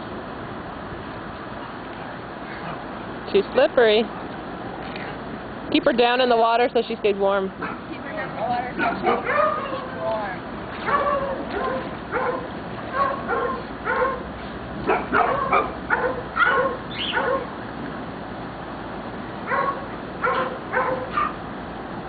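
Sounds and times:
small dog barking: 0:08.8 - 0:09.9, 0:10.8 - 0:14.2, 0:14.9 - 0:17.5, 0:19.5 - 0:21.4.

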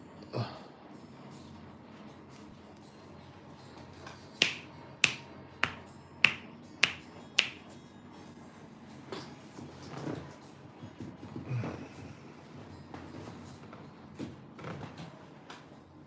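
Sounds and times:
sharp hand snaps: 0:04.4 - 0:07.6.

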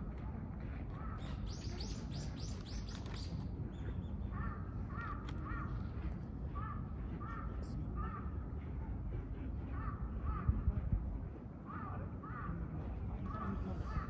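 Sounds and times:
crows cawing: 0:04.4 - 0:08.4.

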